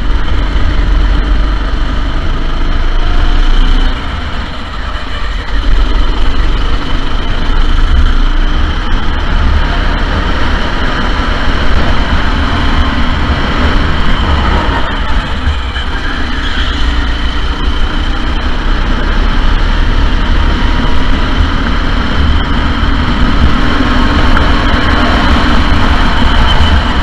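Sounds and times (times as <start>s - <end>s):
go-kart engine running: 0.0s - 27.0s
heavy low rumble: 0.0s - 27.0s.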